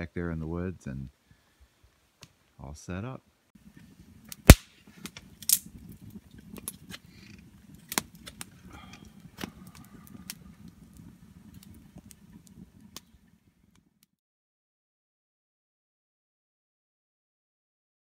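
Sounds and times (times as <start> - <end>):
campfire crackling and popping: 0.0 - 2.7, 3.5 - 14.2
low rumble of burning logs: 0.0 - 14.2.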